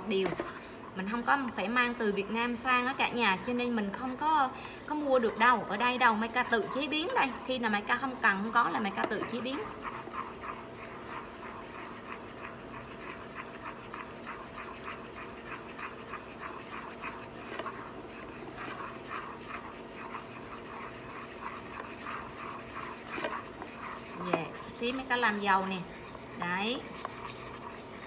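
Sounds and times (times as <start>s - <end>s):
rhythmic scraping in a pan: 0.0s - 28.0s.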